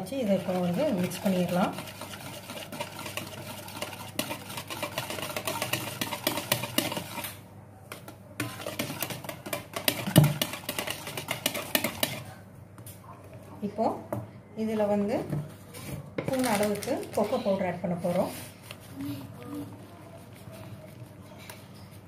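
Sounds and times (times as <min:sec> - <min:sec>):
whisk clicking against bowl: 0:00.0 - 0:12.3
batter sloshing: 0:00.0 - 0:12.4.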